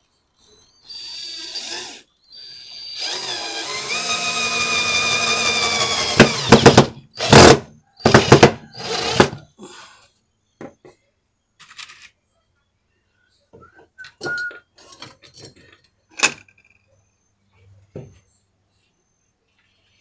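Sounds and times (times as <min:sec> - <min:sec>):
cordless drill motor: 0:00.9 - 0:09.4.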